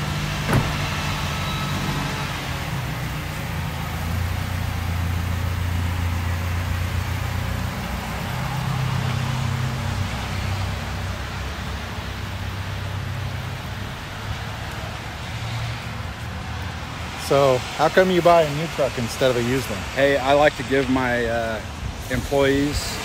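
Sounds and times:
pickup engine pulling away: 0.0s - 15.2s.

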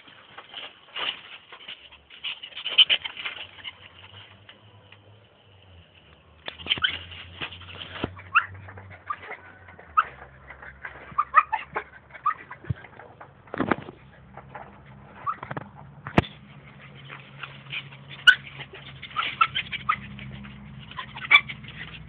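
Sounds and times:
short high squeaks: 1.0s - 4.4s, 6.4s - 12.7s, 15.1s - 15.6s, 16.2s - 22.0s
dog scuffling and snuffling: 6.5s - 22.0s.

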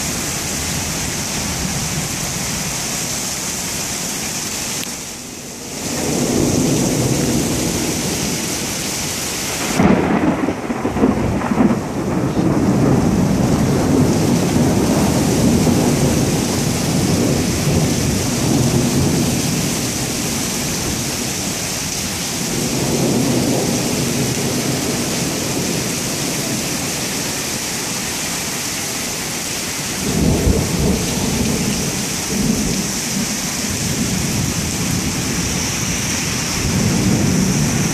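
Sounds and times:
heavy rain on pavement: 0.0s - 37.9s
thunder: 5.8s - 8.7s, 9.6s - 21.0s, 22.5s - 26.7s, 30.0s - 37.9s.

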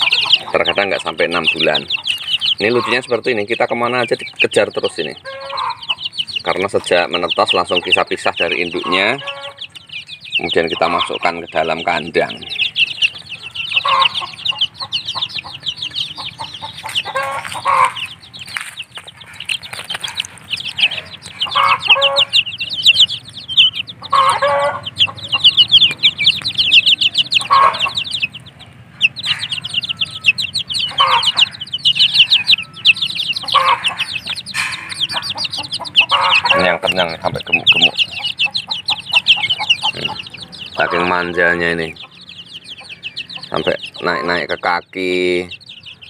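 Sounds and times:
chicks peeping: 0.0s - 46.0s
lower chicken call: 5.2s - 6.4s, 8.7s - 11.3s, 12.2s - 44.6s.

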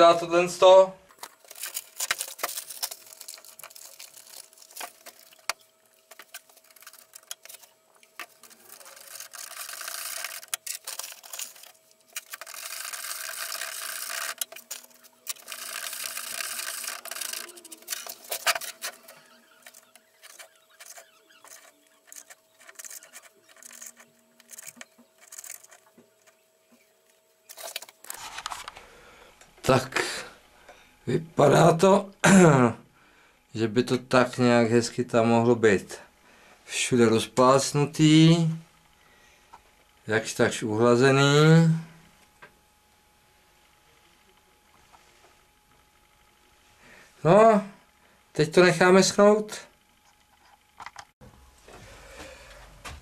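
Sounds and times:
tool scraping and stirring mortar: 1.1s - 26.4s
powder pouring from paper bag: 8.2s - 24.0s.

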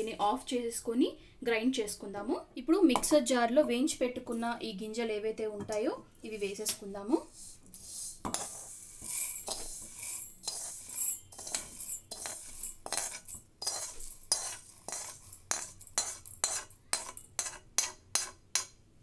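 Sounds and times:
metal spoon scraping pan: 7.3s - 18.8s
grains rattling into jar: 8.4s - 17.4s.

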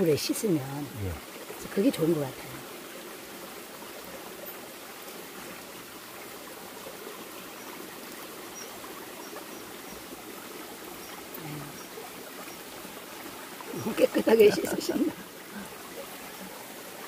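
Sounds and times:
rocky stream running: 0.0s - 17.0s.

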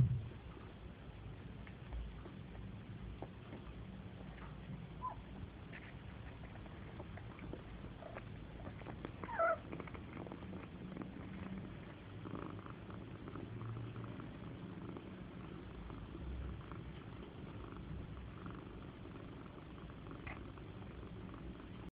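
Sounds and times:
cat purring: 0.0s - 21.9s
faint kitten squeaks: 5.0s - 5.3s, 9.2s - 9.6s.

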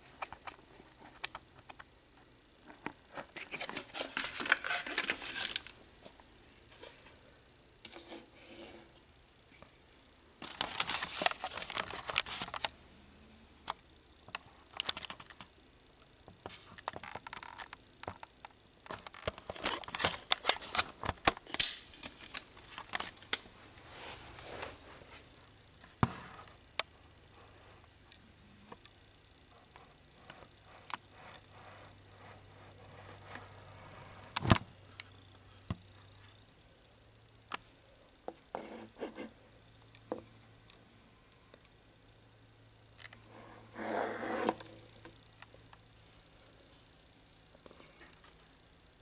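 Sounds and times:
cardboard packaging rustling: 3.1s - 5.8s, 10.4s - 12.7s.

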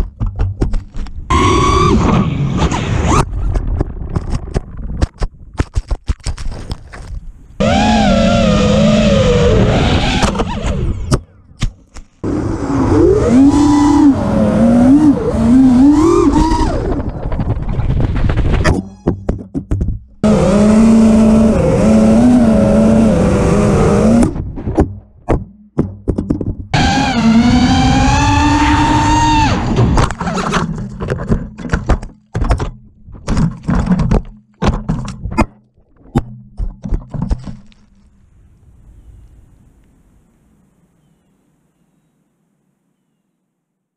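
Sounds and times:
drone striking and snapping branches: 0.0s - 12.7s, 14.8s - 18.8s, 29.5s - 38.1s
drone motors whining: 1.3s - 3.3s, 7.6s - 11.2s, 12.2s - 18.5s, 20.2s - 24.4s, 26.8s - 30.4s
drone hitting the ground: 1.9s - 5.4s, 16.0s - 18.7s.

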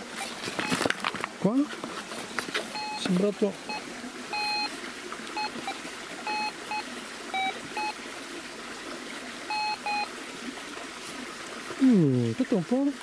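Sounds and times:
stream trickling: 0.0s - 13.0s
metal detector beeps: 0.6s - 0.8s, 2.7s - 4.7s, 5.4s - 8.0s, 9.5s - 10.1s.

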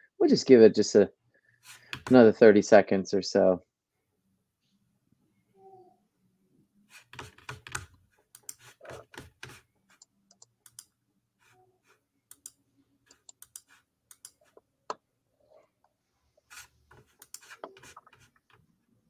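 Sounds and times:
typing on a computer keyboard: 7.0s - 9.6s, 12.3s - 14.4s.

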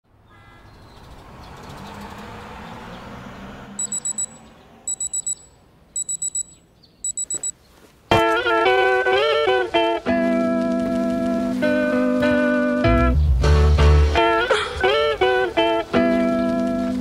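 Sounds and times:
alarm clock beeping: 3.8s - 7.5s
loud guitar music: 8.1s - 17.0s.

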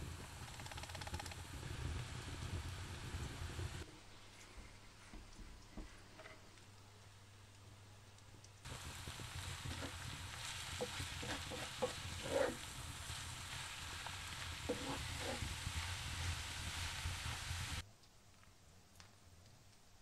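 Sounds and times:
spatula scraping pan: 8.7s - 17.8s
vegetables sizzling in oil: 8.7s - 17.8s.

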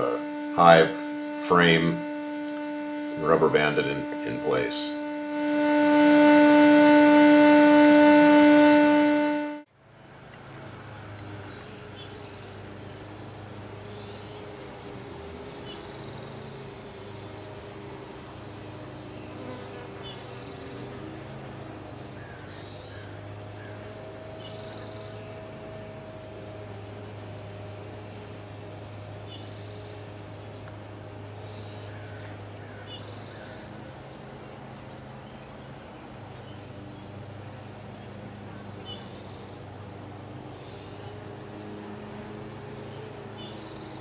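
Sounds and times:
honey bees buzzing: 0.0s - 9.7s, 10.5s - 44.0s
vacuum motor whining: 0.0s - 9.7s, 12.4s - 31.6s.

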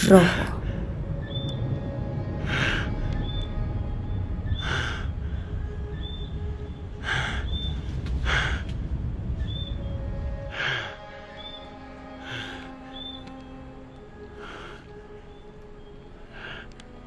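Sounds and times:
low rumble: 0.0s - 17.0s
heavy breaths: 2.2s - 3.3s, 4.4s - 5.8s, 6.9s - 9.1s, 10.4s - 13.1s, 14.1s - 17.0s.

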